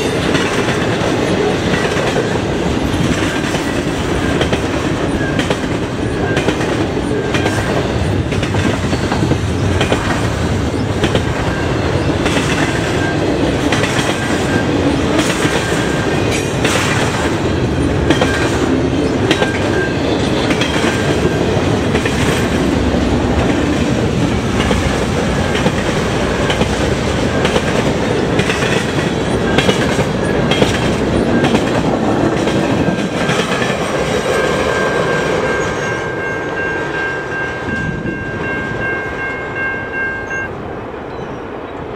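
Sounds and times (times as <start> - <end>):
train wheels rumbling on rails: 0.0 - 41.9.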